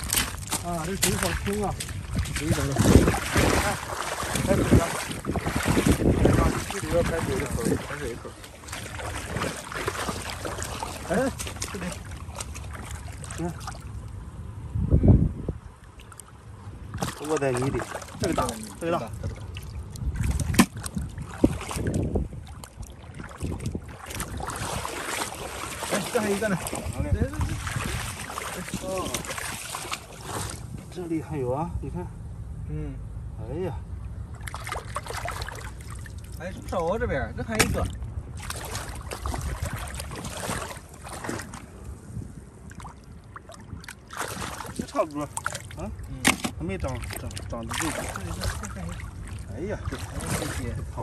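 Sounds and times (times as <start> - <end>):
footsteps sloshing through water: 0.0 - 14.3, 15.7 - 31.0, 33.9 - 36.8, 37.4 - 51.0
wind rumble on microphone: 0.0 - 51.0.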